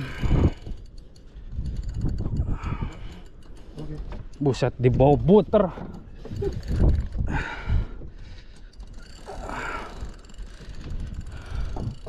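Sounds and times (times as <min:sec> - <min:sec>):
fishing reel ticking and whirring: 0:00.0 - 0:12.0.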